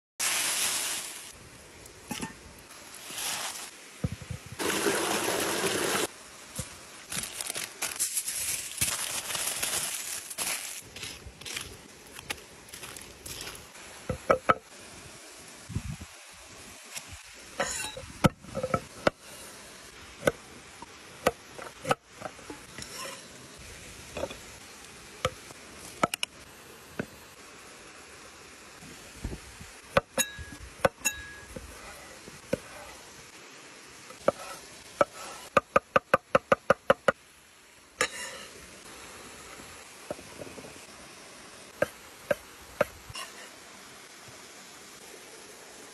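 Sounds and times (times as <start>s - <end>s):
running water hiss: 0.2s - 45.9s.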